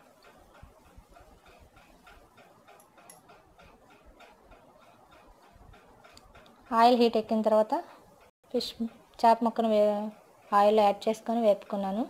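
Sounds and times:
faint regular ticking: 0:00.0 - 0:12.0.

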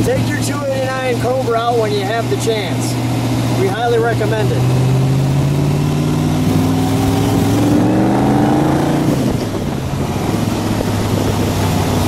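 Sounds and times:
car engine accelerating: 0:00.0 - 0:12.0
wind noise: 0:04.6 - 0:12.0.

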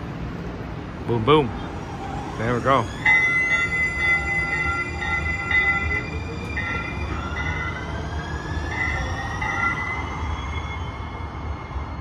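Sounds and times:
train rumble: 0:00.0 - 0:12.0
high steady tones: 0:02.5 - 0:11.0.

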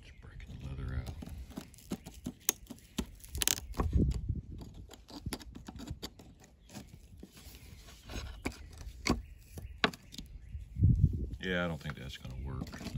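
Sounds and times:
screwdriver scraping leather washers: 0:01.1 - 0:03.9.

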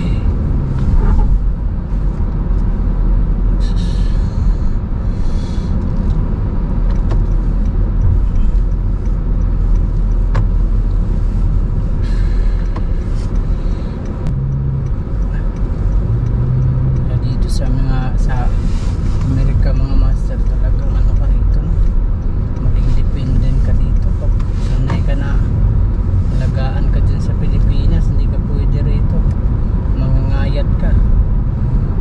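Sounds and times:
car engine and tyre rumble: 0:00.0 - 0:32.0
road hiss: 0:03.4 - 0:06.4, 0:10.0 - 0:15.9, 0:18.3 - 0:19.6.

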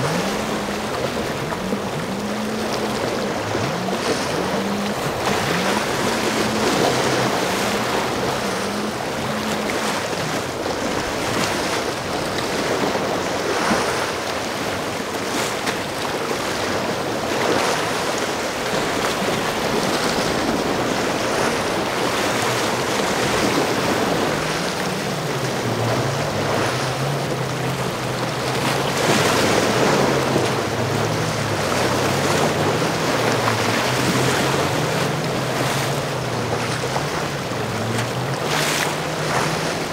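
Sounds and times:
powerboat engine droning: 0:00.0 - 0:39.9
surf: 0:00.0 - 0:39.9.

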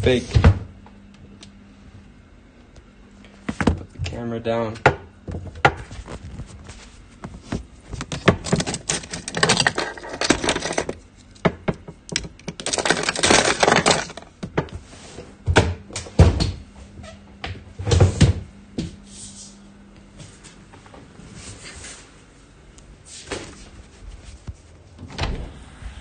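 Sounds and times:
handling clicks and rustling: 0:07.3 - 0:11.4, 0:12.0 - 0:14.3.

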